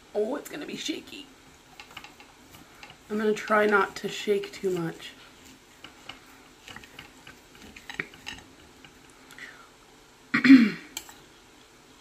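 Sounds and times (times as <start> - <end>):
knife and fork scraping plate: 5.8 - 9.0
person clearing throat: 10.3 - 11.0.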